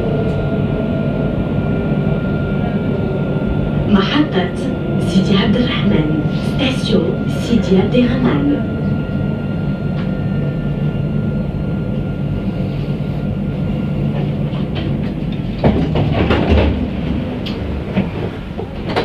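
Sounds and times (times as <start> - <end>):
tram rumbling along track: 0.0 - 19.0
clattering knocks: 14.5 - 19.0.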